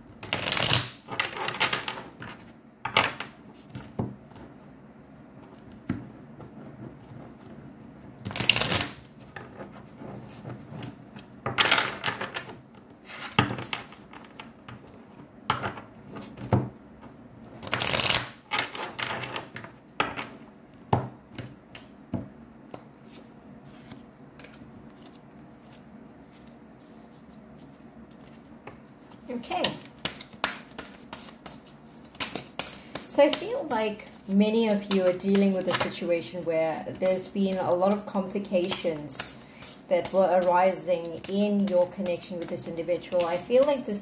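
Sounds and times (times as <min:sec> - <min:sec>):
cards being shuffled: 0:00.2 - 0:02.5, 0:08.3 - 0:15.0, 0:17.6 - 0:19.6, 0:22.7 - 0:44.0.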